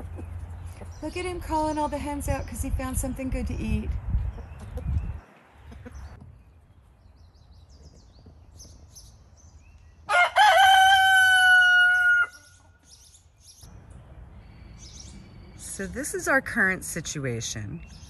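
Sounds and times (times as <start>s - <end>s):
rooster crowing: 10.1s - 12.6s.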